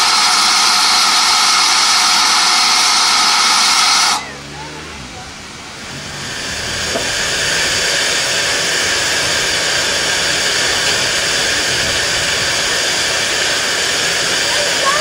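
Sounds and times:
steam hissing from locomotive: 0.0 - 15.0.

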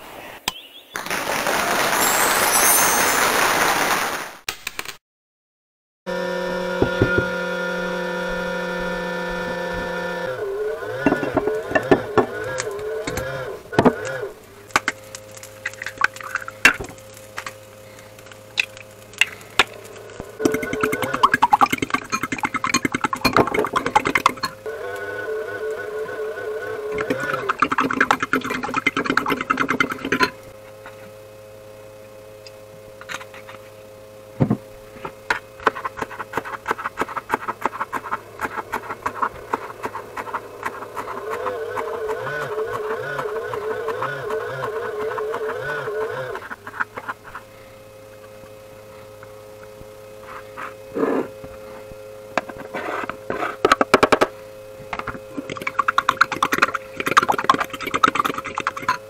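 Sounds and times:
steady low hum: 6.1 - 59.0
spoon beating eggs in bowl: 55.4 - 59.0.

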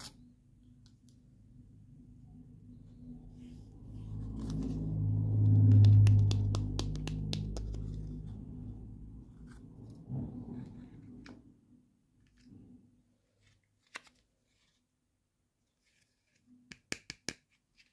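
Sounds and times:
low hum: 1.4 - 11.8.

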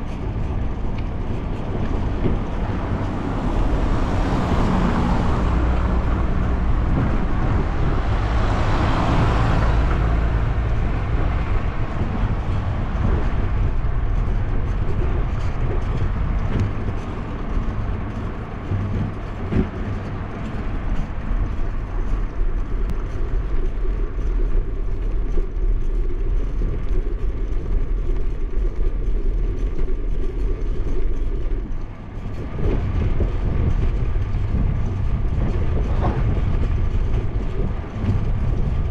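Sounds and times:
wind and road rumble: 0.0 - 38.9
car passing by: 2.3 - 14.1.

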